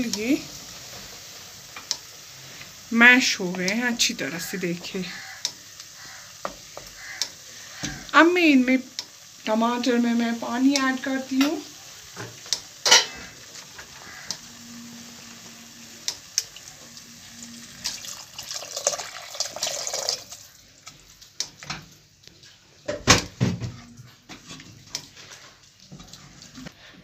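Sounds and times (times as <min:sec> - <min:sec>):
water splashing into a steel pot: 0:17.8 - 0:20.5.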